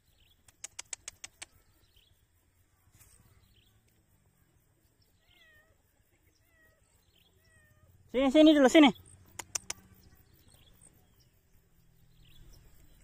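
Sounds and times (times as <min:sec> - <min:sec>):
faint bird chirps: 0:00.0 - 0:13.0
cat meowing: 0:05.2 - 0:05.8, 0:06.4 - 0:07.9.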